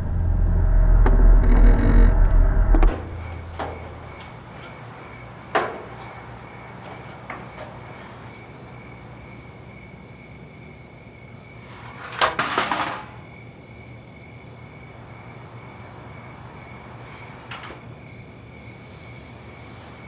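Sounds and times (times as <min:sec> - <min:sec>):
low hum: 0:00.0 - 0:04.3
cricket-like chirps: 0:00.1 - 0:12.2, 0:13.0 - 0:20.0
loud rattling knock: 0:00.9 - 0:04.2.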